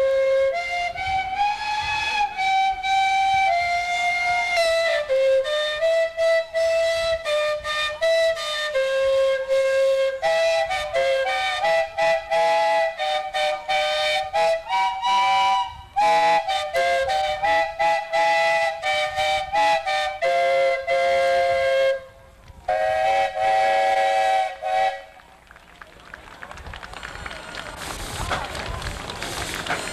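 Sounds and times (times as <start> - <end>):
steam calliope playing a tune: 0.0 - 25.2.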